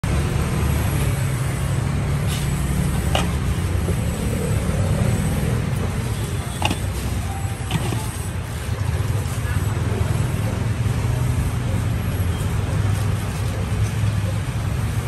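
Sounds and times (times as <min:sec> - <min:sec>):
road traffic rumble: 0:00.0 - 0:15.0.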